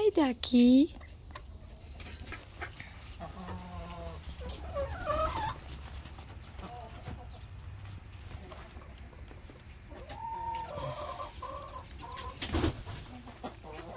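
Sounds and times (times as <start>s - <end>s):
hens clucking: 0.9s - 13.9s
hen drawn-out calls: 9.9s - 12.4s.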